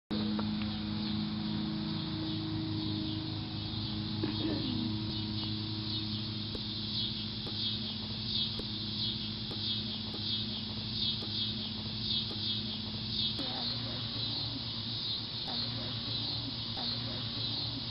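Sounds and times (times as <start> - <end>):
steady low hum: 0.1 - 17.9
insects chirping: 0.4 - 17.9.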